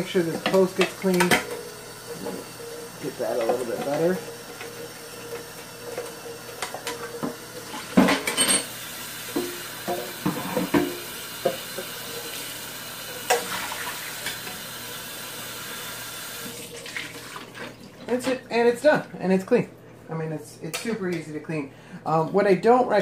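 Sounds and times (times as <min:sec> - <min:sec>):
tap water running into sink: 0:00.0 - 0:19.1
pan clunking against sink: 0:06.6 - 0:08.7, 0:09.3 - 0:12.0.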